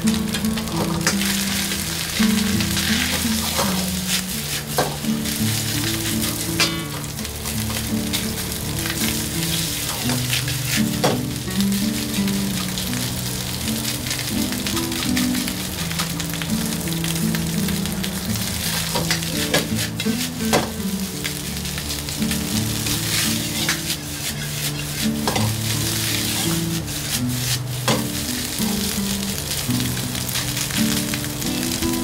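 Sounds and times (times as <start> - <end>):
rice sizzling in a wok: 0.0 - 32.0
metal ladle striking a wok: 6.6 - 7.0.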